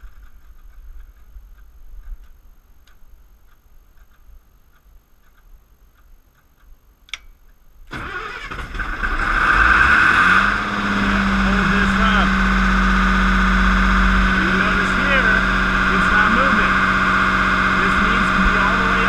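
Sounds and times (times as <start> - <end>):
diesel engine cranking and starting: 7.9 - 19.0.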